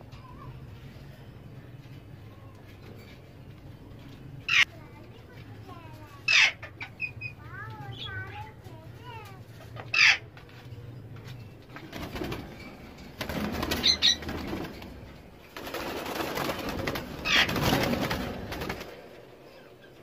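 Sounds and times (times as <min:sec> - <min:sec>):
parrots screeching: 0:04.5 - 0:04.7, 0:06.3 - 0:07.4, 0:09.8 - 0:10.3, 0:13.5 - 0:14.6, 0:17.2 - 0:17.9
wings flapping: 0:11.6 - 0:19.6.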